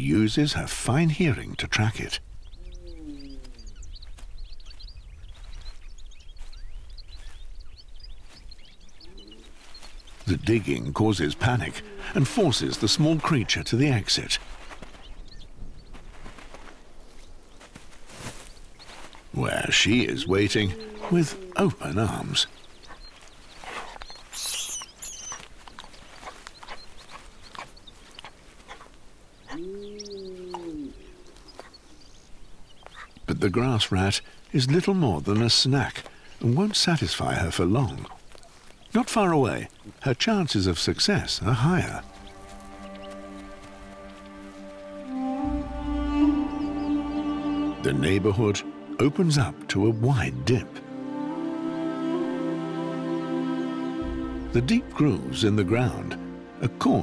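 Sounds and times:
small birds twittering: 0:00.0 - 0:51.6, 0:53.7 - 0:57.0
paws scratching dry earth: 0:03.4 - 0:29.7, 0:35.4 - 0:40.0, 0:40.7 - 0:45.9
animal sniffing: 0:20.7 - 0:21.7, 0:22.8 - 0:28.9
scratches and scrapes of earth: 0:22.7 - 0:29.0
short high squeaks: 0:24.3 - 0:25.4.

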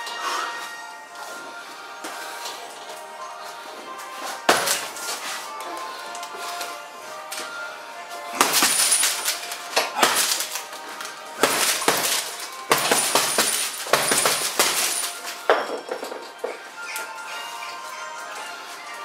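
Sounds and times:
background music: 0:00.0 - 0:19.0
punches hitting heavy bag: 0:04.4 - 0:05.0, 0:08.3 - 0:10.7, 0:11.3 - 0:15.7.

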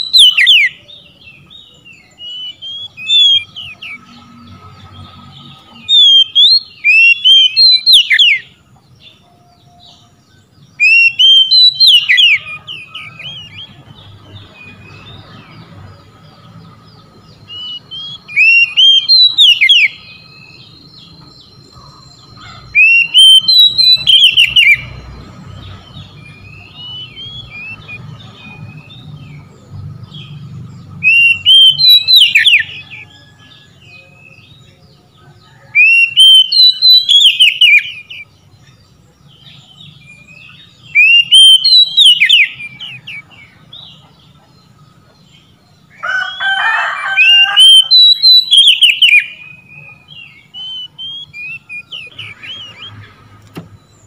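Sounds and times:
bird singing whistles: 0:00.0 - 0:04.1, 0:05.7 - 0:10.0, 0:10.8 - 0:13.8, 0:17.4 - 0:25.0, 0:26.0 - 0:29.1, 0:31.0 - 0:34.4, 0:35.5 - 0:38.3, 0:39.4 - 0:43.2, 0:47.2 - 0:53.0
soft bird twittering: 0:00.0 - 0:54.0.

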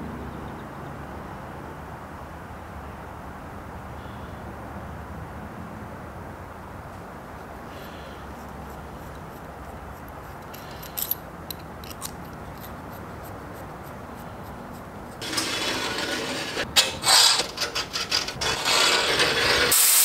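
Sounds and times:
scribe scratching sheet metal: 0:12.0 - 0:20.0
loud steady hiss: 0:18.7 - 0:20.0.

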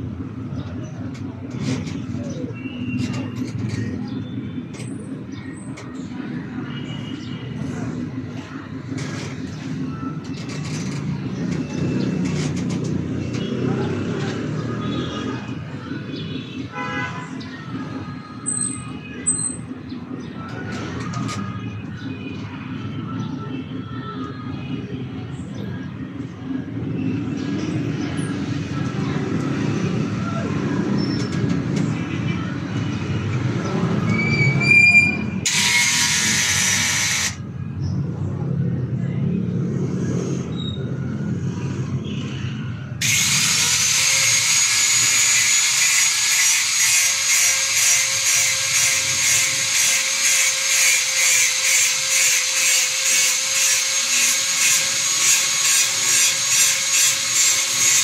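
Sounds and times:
power tool motor whining: 0:35.4 - 0:37.4, 0:43.0 - 0:58.0.

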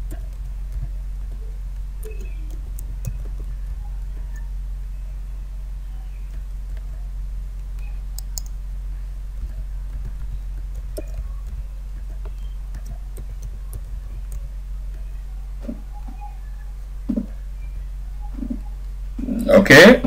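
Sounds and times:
low electrical hum: 0:00.0 - 0:20.0
keyboard key clicks: 0:07.8 - 0:08.6.

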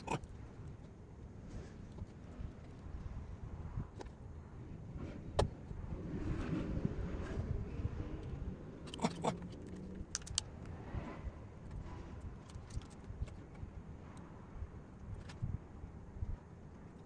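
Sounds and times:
plastic parts clicking and rattling: 0:08.8 - 0:10.7, 0:11.6 - 0:13.7.

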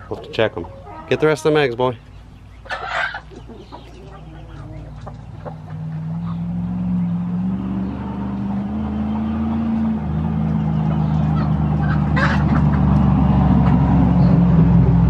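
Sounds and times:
engine running: 0:03.3 - 0:15.0.

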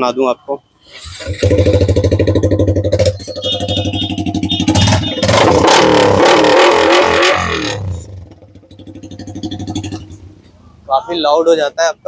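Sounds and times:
motorcycle engine revving loud: 0:00.9 - 0:10.3.

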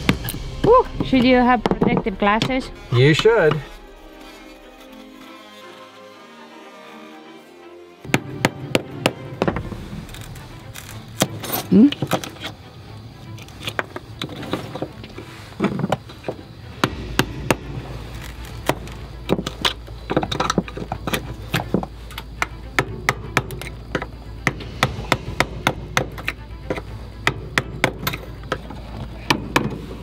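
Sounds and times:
chisel scraping and tapping: 0:18.7 - 0:29.9.

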